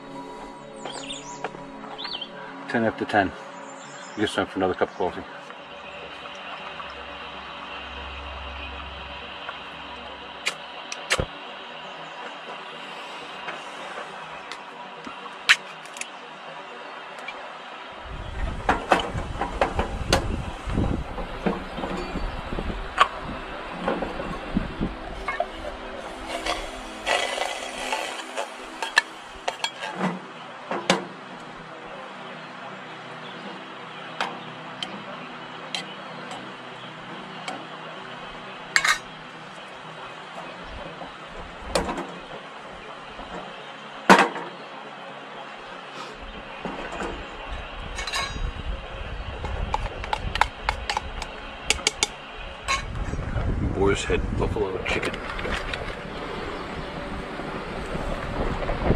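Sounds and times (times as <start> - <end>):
faint steady hum: 0.0 - 44.0
steady low rumble: 5.0 - 15.0, 18.0 - 29.8, 46.3 - 58.9
dishes and utensils clicking: 26.3 - 30.1, 38.8 - 39.1.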